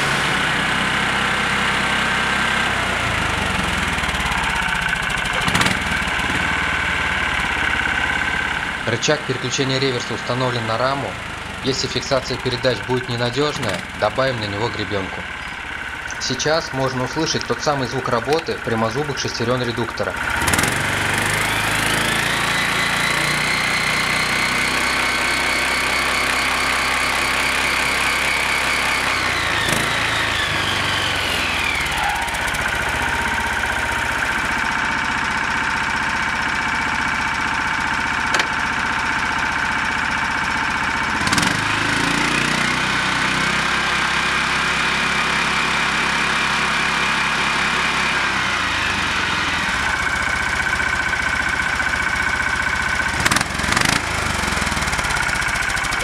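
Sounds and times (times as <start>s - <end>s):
engine running: 0.0s - 56.0s
gearbox gears whining: 2.7s - 35.2s.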